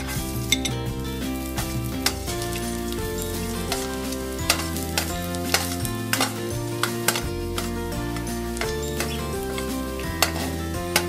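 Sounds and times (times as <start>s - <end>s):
background music: 0.0s - 11.0s
garlic sizzling in oil: 0.0s - 11.0s
metal spoon clinking on pot: 3.1s - 11.0s.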